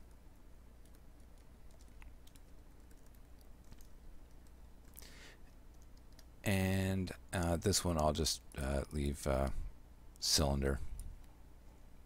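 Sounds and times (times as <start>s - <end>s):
typing on computer keyboard: 0.8s - 5.0s, 5.7s - 6.3s.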